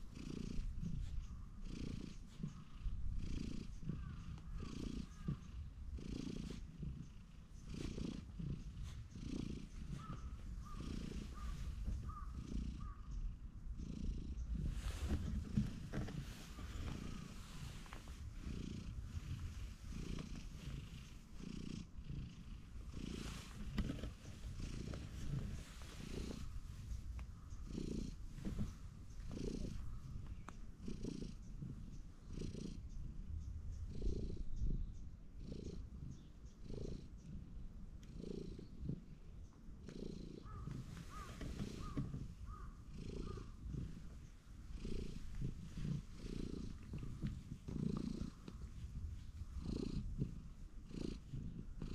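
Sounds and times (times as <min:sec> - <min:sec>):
cat purring: 0:00.0 - 0:51.9.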